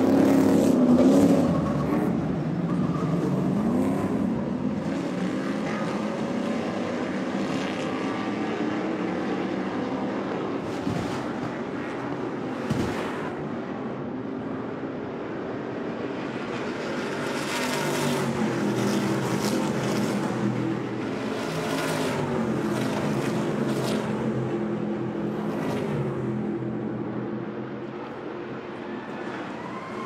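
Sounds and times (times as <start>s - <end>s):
racing truck engines passing: 0.0s - 30.0s
sharp thump: 12.6s - 13.2s.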